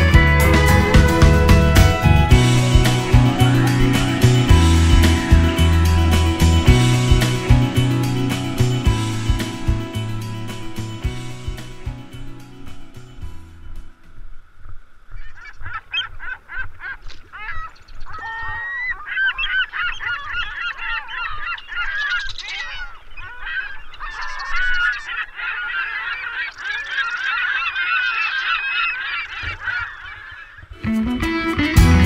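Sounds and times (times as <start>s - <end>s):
geese honking: 0.0s - 11.8s, 15.2s - 32.0s.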